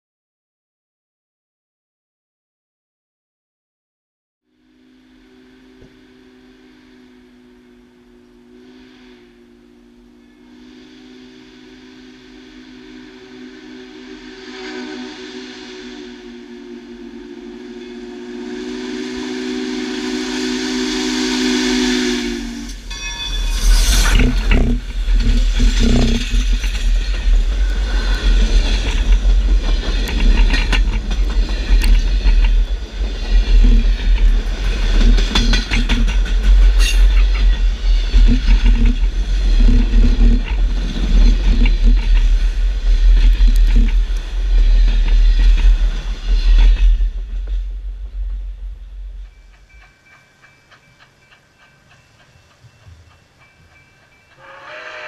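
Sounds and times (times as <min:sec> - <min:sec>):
train rumbling past: 0:04.5 - 0:55.0
steam locomotive chime whistle: 0:04.6 - 0:55.0
wheels clacking over track: 0:23.9 - 0:54.4.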